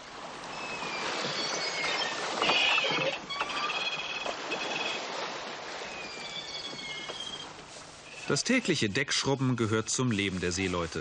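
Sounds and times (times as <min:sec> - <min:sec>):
rush of wind and water: 0:00.0 - 0:11.0
rigging squeaking and creaking: 0:00.6 - 0:05.0, 0:05.8 - 0:08.8.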